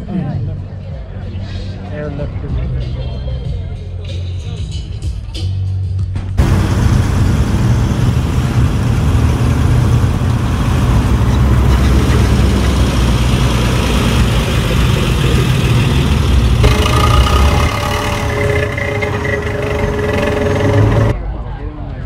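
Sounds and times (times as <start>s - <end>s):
cars driving past rumbling: 6.4s - 21.2s
steady high-pitched tone: 16.6s - 21.2s.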